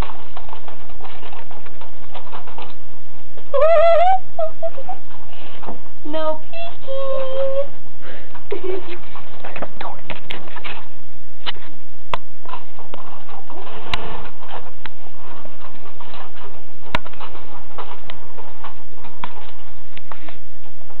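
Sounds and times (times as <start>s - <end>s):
rustling: 0.0s - 4.0s, 7.1s - 21.0s.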